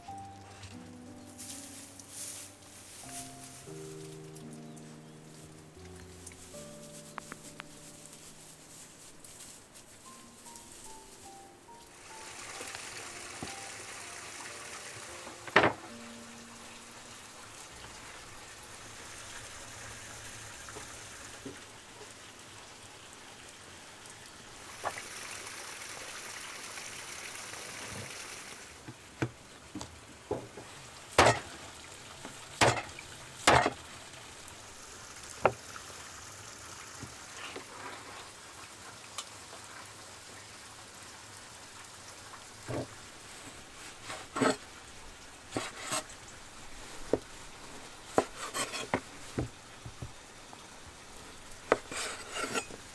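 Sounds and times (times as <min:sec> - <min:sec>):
steady background hiss: 0:00.0 - 0:52.9
knife striking cutting board: 0:31.2 - 0:31.5, 0:32.6 - 0:32.9, 0:33.5 - 0:33.8, 0:48.2 - 0:49.0.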